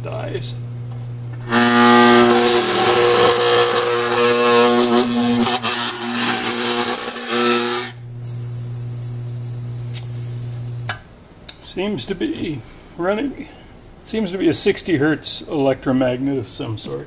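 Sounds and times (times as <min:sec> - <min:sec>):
degausser humming: 0:00.0 - 0:14.5
calipers buzzing against metal: 0:01.3 - 0:11.0.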